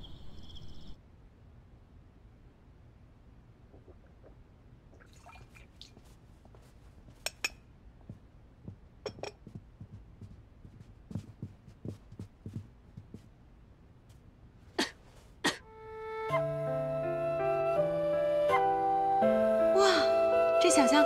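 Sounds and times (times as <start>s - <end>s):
footsteps on wooden floor: 8.0s - 13.3s.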